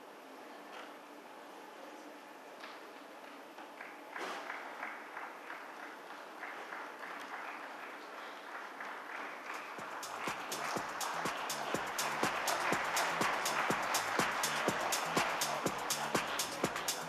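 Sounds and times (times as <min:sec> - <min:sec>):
audience applauding: 0:03.8 - 0:17.0
music with a beat: 0:09.8 - 0:17.0.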